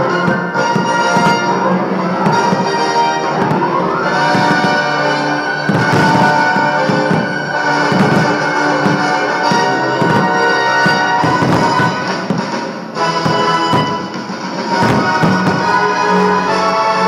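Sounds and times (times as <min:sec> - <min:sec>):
orchestral music with brass: 0:00.0 - 0:17.0
sharp hits: 0:03.5 - 0:15.9.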